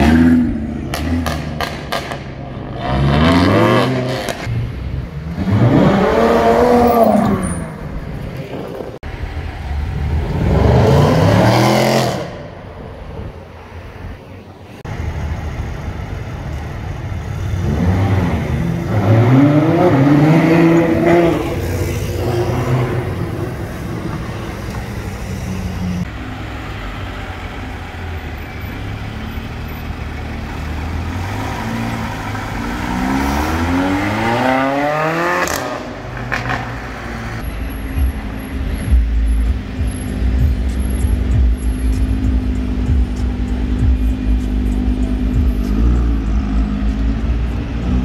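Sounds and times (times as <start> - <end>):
supercar engine revving: 30.0 - 36.8.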